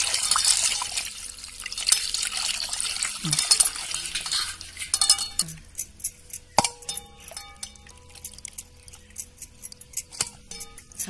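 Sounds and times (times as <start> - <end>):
metal bowls and glass bangles clinking: 0.0 - 11.0.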